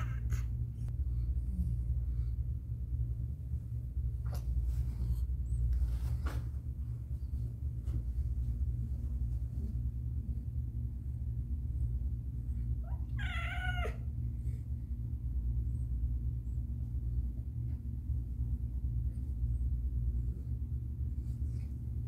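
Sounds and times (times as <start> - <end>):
low hum: 0.0 - 22.0
cat meowing: 12.8 - 14.0.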